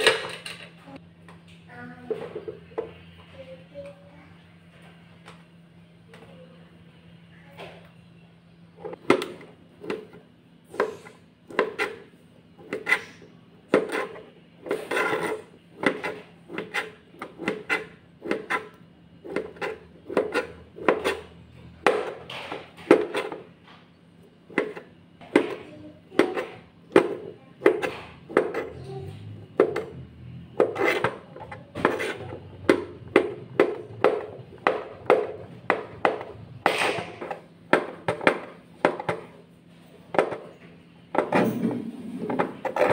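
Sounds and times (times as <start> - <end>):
knife chopping on plastic board: 8.9 - 23.5, 24.5 - 28.8, 29.4 - 39.4, 40.1 - 42.9.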